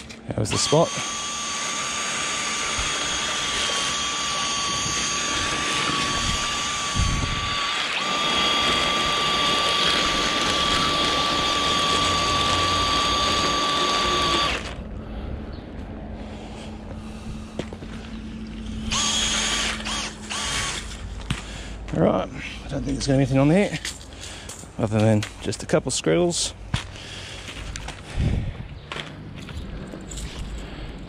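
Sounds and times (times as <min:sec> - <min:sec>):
cordless drill whining: 0:00.0 - 0:14.9, 0:18.6 - 0:21.4.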